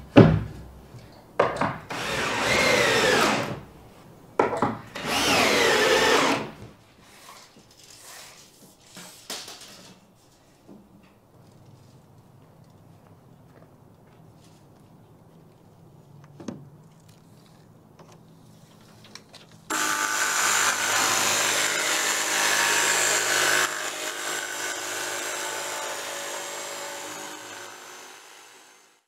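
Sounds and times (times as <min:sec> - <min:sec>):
jigsaw cutting plywood: 0:01.9 - 0:03.6, 0:05.0 - 0:06.6, 0:19.7 - 0:29.0.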